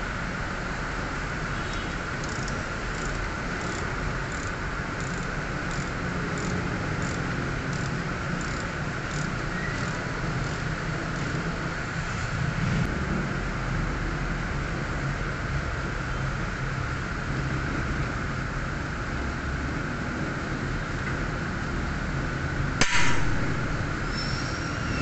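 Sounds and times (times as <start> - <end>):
steady background hum: 0.0 - 20.8, 21.4 - 25.0
socket ratchet clicking: 2.2 - 11.4.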